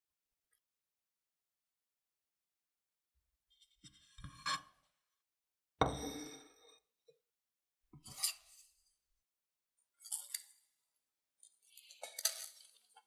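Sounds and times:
ceramic plate knocking down: 5.8 - 6.3.

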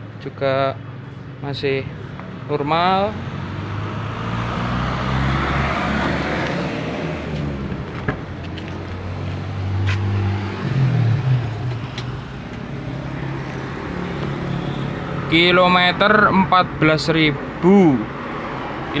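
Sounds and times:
vehicle engine running: 5.6 - 17.2.

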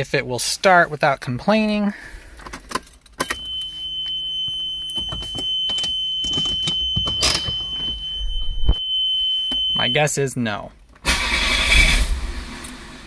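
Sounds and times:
high-pitched warning tone: 3.2 - 10.4
car engine cranking: 11.0 - 12.9.

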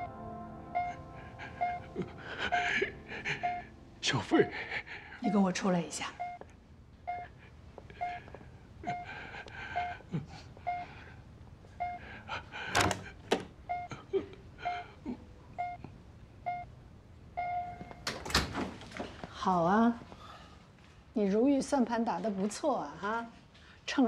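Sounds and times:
patient monitor beeping: 0.7 - 18.2.

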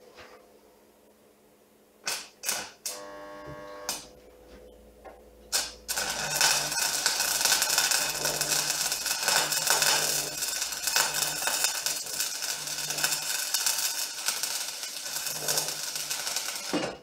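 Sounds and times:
welder crackling: 2.0 - 4.1, 5.5 - 17.0
low welder hum: 2.0 - 17.0.

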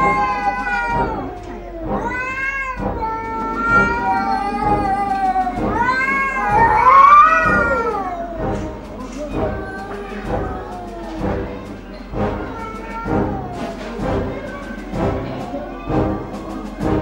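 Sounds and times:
cats yowling: 0.0 - 16.5.

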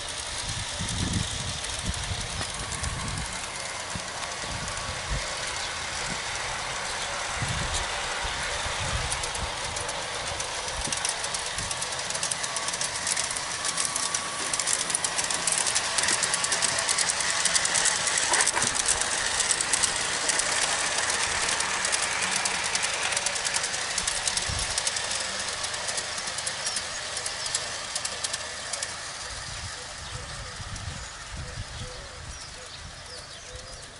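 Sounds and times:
model train wheels clicking: 0.0 - 33.9.

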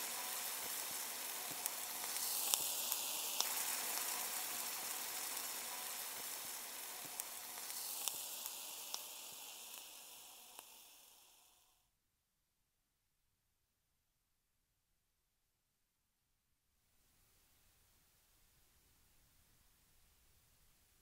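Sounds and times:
food sizzling in a wok: 0.0 - 11.8.

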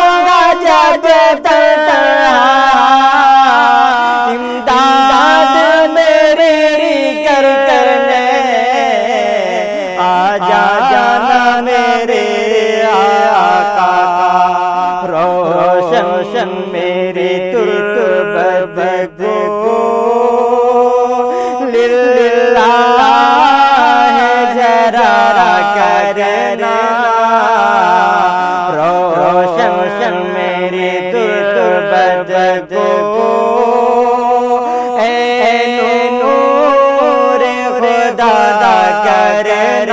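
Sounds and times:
man singing unaccompanied: 0.0 - 39.9
breaths: 4.3 - 4.7, 21.2 - 21.8, 34.6 - 35.0.

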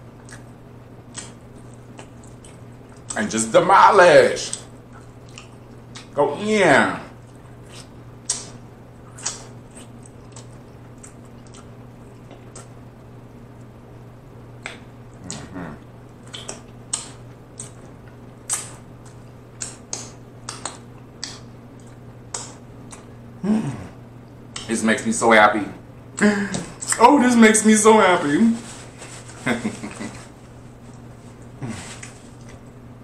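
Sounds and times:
wet lip smacks: 1.1 - 3.2, 7.7 - 12.8, 16.2 - 17.8, 18.5 - 23.1
person humming: 15.2 - 15.9, 23.4 - 24.0, 31.6 - 32.1.

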